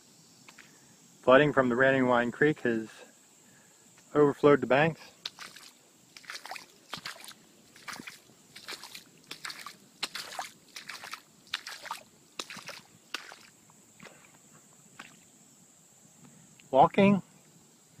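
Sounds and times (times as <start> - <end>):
footsteps through soggy grass: 5.2 - 14.3.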